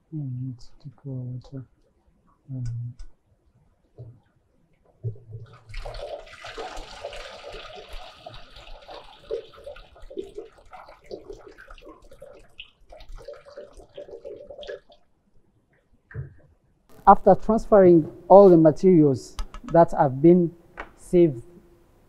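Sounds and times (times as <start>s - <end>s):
water pouring onto metal sieve: 5.6s - 15.0s.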